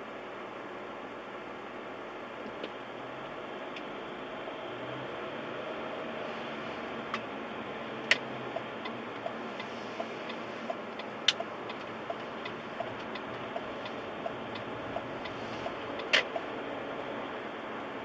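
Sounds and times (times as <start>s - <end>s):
road noise inside car: 0.0s - 18.0s
turn signal ticking: 5.9s - 18.0s.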